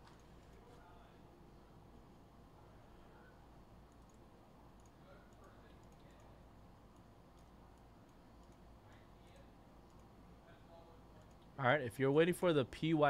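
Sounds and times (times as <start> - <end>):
faint clicks: 3.9 - 4.2, 4.8 - 8.7, 9.8 - 10.1, 11.2 - 11.5.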